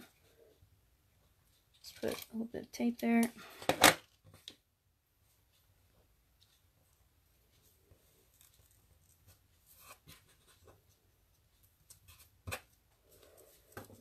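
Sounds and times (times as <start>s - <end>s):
faint ribbon rustling: 5.2s - 14.0s.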